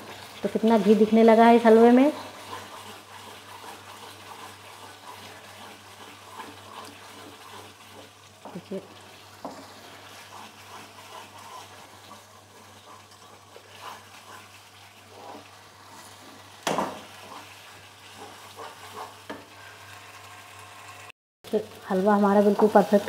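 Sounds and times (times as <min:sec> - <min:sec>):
halwa sizzling in pan: 0:00.0 - 0:23.0.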